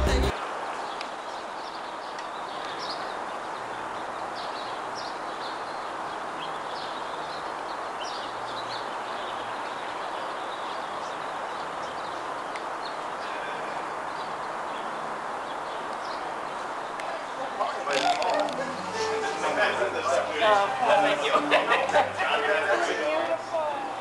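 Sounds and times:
birds chirping: 0.0 - 20.3
steady outdoor hiss: 0.0 - 24.0.

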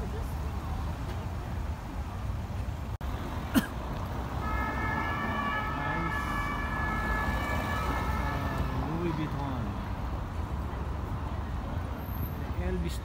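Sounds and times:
city traffic rumbling: 0.0 - 13.0
emergency vehicle siren: 4.4 - 9.4.

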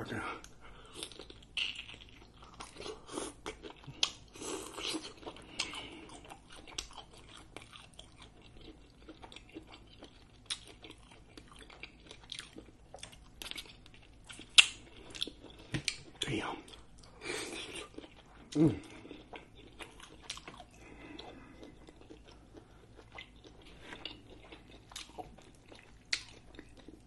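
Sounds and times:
person chewing shrimp: 0.4 - 27.0
wet mouth clicks and smacks: 14.4 - 14.8.

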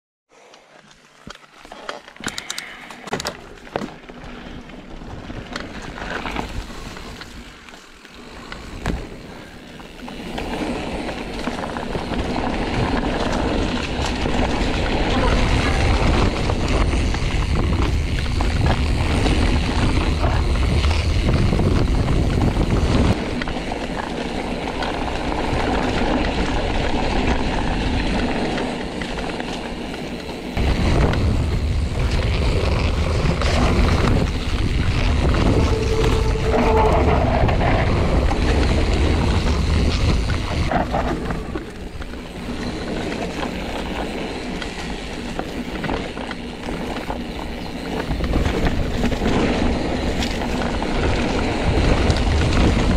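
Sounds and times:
scattered clicks: 0.5 - 3.6
bike tyres rumbling on dirt trail: 0.5 - 52.9.

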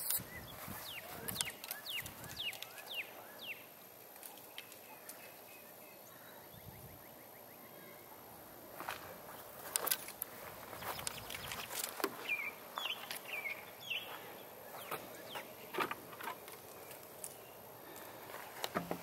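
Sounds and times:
faint outdoor background: 0.0 - 19.0
songbird whistling: 10.9 - 15.5.

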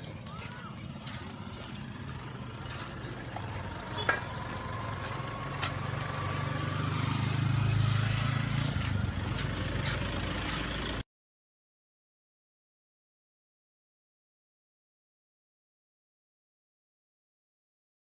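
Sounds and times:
vehicle engine running: 0.0 - 11.0.

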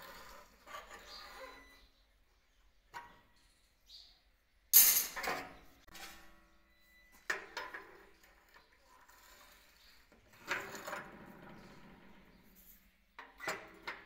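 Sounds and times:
metal clinking on metal: 4.8 - 5.4
metallic clank with ringing: 4.8 - 5.4.

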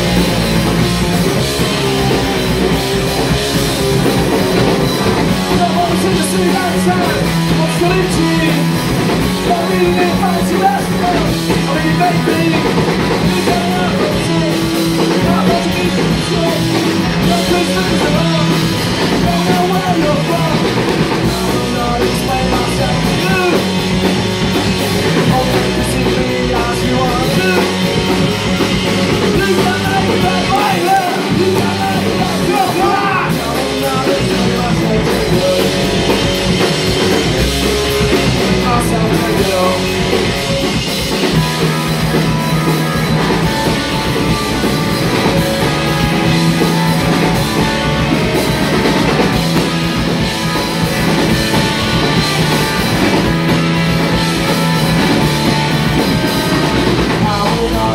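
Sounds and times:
person singing: 0.0 - 24.1, 24.7 - 49.6, 50.2 - 57.9
distorted electric guitars: 0.0 - 57.9
drum kit: 0.0 - 57.9.

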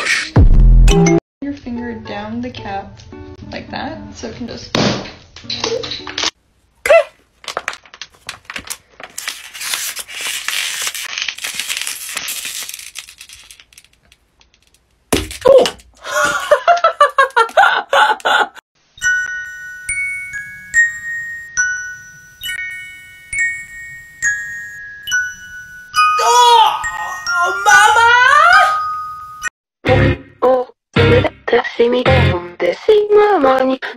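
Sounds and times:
plastic bottle crinkling: 7.4 - 16.0
laughter: 16.2 - 18.6
tinkling bell-like tune: 19.0 - 29.5.

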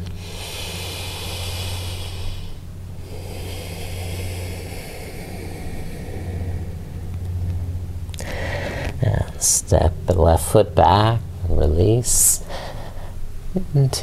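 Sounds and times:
person breathing slowly: 0.0 - 9.0, 12.4 - 13.3
steady low hum: 0.0 - 14.0.

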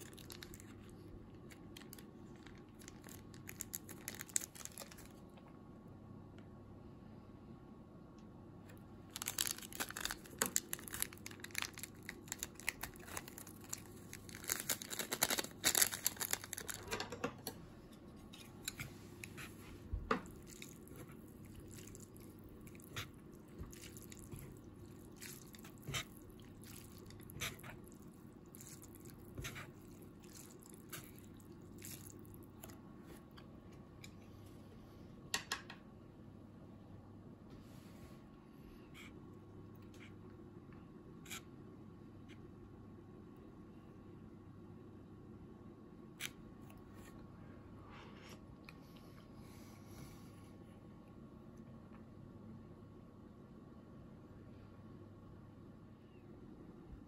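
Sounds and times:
sachet crinkling and rustling: 0.0 - 0.7, 1.5 - 5.2, 9.1 - 16.9
low steady hum: 0.0 - 57.0.

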